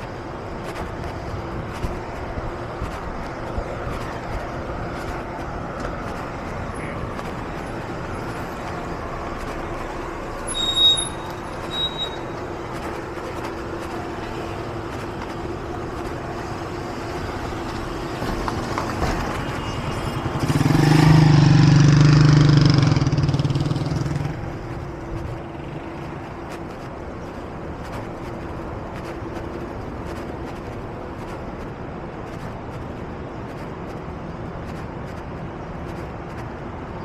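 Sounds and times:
street traffic hum: 0.0s - 37.0s
brief high squeak: 10.4s - 12.3s
vehicle engine passing close: 20.1s - 24.8s.

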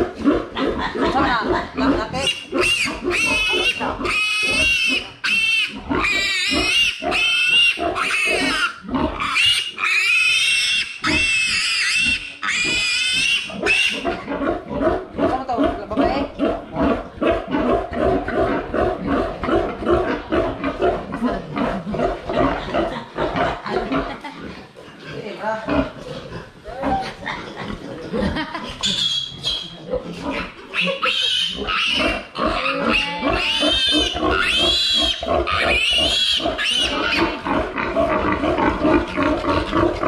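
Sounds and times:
piglet squealing: 2.1s - 14.1s, 28.8s - 29.8s, 30.4s - 37.4s.

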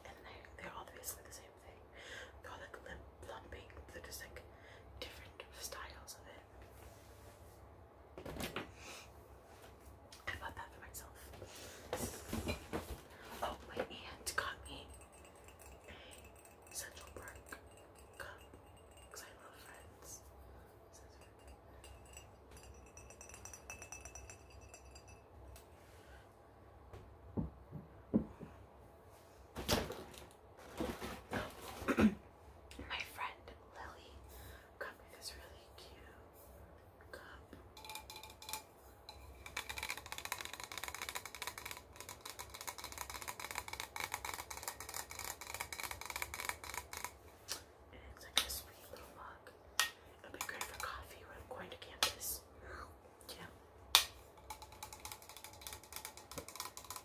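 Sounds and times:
fingernails tapping ceramic mug: 21.2s - 25.2s, 37.8s - 47.1s, 54.4s - 57.0s.

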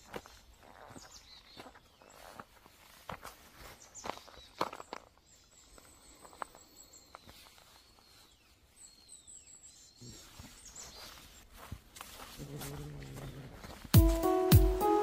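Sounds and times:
footsteps on dry leaves: 0.0s - 5.5s, 10.2s - 15.0s
faint bird chirps: 3.3s - 11.7s.

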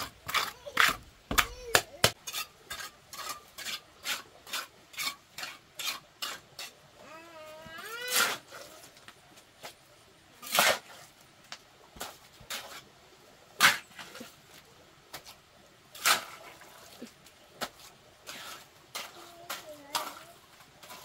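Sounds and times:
trowel scraping wet cement: 0.0s - 6.8s, 7.7s - 9.0s, 10.4s - 11.0s, 16.0s - 21.0s.

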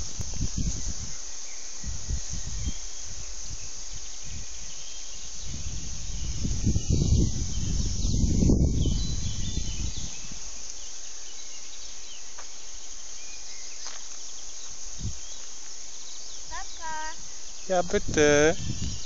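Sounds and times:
wind buffeting microphone: 0.0s - 10.6s, 14.9s - 15.4s, 16.5s - 19.0s
high outdoor hiss: 0.0s - 19.0s.

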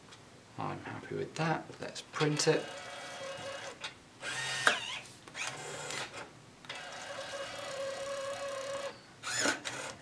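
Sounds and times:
label printer whirring: 2.6s - 6.1s, 6.7s - 10.0s.

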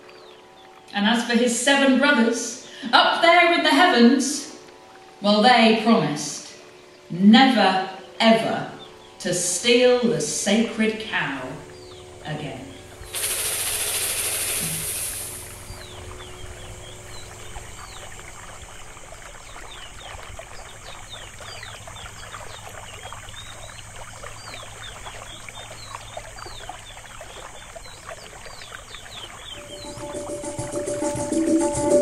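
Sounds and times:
music: 0.0s - 13.1s, 29.6s - 32.0s
stream water babbling: 0.0s - 32.0s
small birds chirping: 11.5s - 31.1s.

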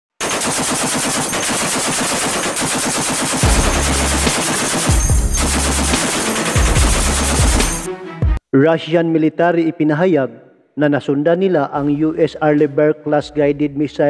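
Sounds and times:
heavy machine gun rapid fire: 0.2s - 7.9s
heavy low booms: 3.4s - 5.9s.

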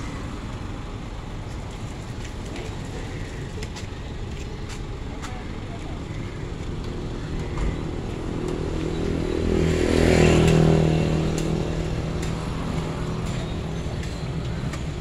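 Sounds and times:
traffic noise: 0.0s - 15.0s
vehicle passing close by: 8.2s - 13.2s.

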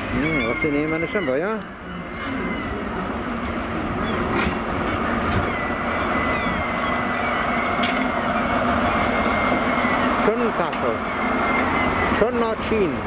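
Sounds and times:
diesel train engine: 0.0s - 13.0s
wheels squealing on curve: 4.9s - 13.0s.

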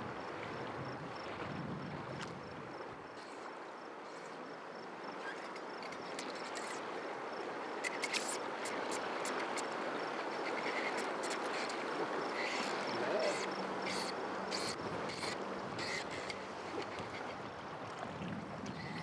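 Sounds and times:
river current rushing: 6.8s - 19.0s.

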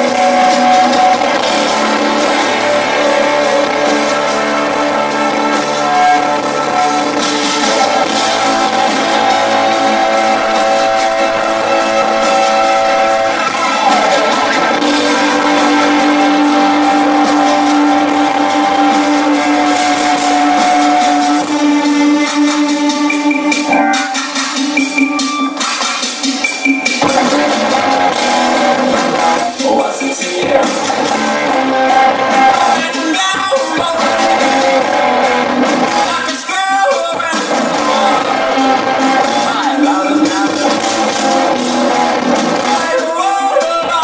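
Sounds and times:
rock band droning chord: 0.0s - 26.4s, 27.0s - 36.3s, 37.4s - 43.0s
electric guitar: 0.0s - 44.0s
man singing: 27.0s - 44.0s.

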